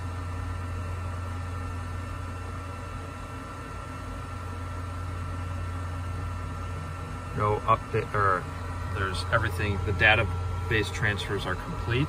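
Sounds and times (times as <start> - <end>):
fan noise: 0.0 - 12.0
low electrical hum: 0.0 - 12.0
high-pitched whine: 4.4 - 12.0.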